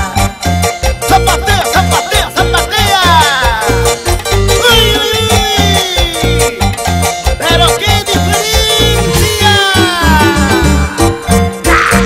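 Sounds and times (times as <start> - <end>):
folk band with guitar and harp: 3.5 - 12.0.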